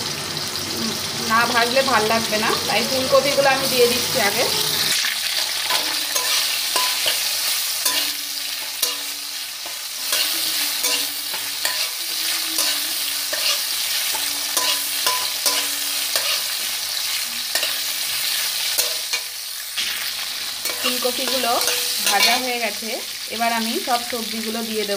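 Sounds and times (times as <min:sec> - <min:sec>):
frying hiss in a wok: 0:00.0 - 0:24.9
metal spatula scraping a pan: 0:04.2 - 0:22.6.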